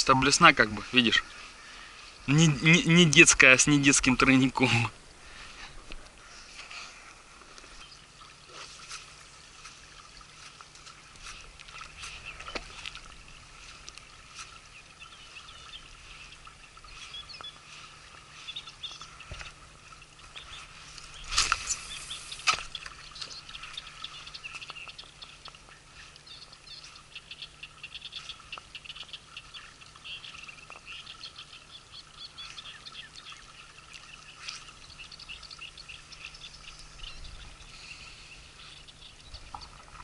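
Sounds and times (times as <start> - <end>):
faint bird chirps: 14.4 - 40.0.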